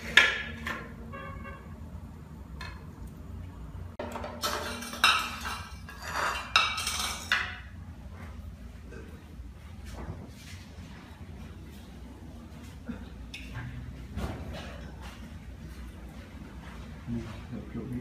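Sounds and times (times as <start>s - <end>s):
crockery and cutlery clattering: 4.0s - 7.7s.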